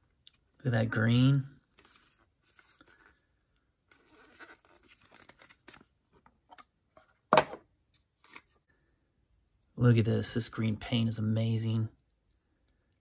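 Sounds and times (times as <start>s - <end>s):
packaging rustling and scraping: 3.9s - 6.3s.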